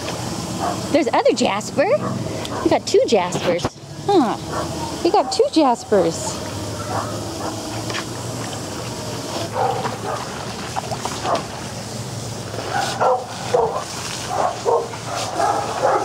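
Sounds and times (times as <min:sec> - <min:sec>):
steady low hum: 0:00.0 - 0:16.0
dogs barking and yipping: 0:00.6 - 0:00.9, 0:02.0 - 0:02.9, 0:04.4 - 0:05.8, 0:06.7 - 0:07.7, 0:09.4 - 0:10.4, 0:11.2 - 0:11.5, 0:12.6 - 0:16.0.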